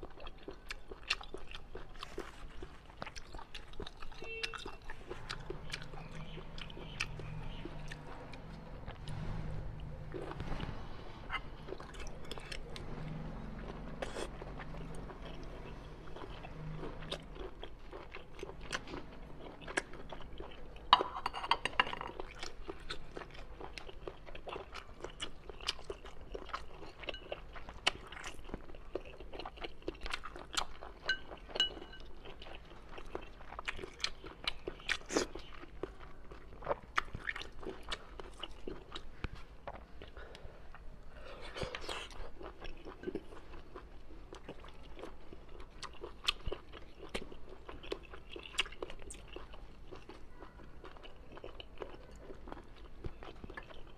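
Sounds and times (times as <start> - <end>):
soft wet squishing: 0.0 - 20.8.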